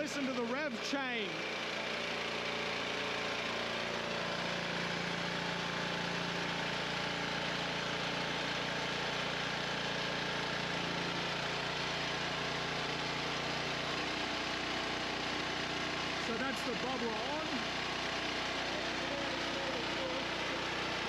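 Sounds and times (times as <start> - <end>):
petrol engine running: 0.0 - 21.0.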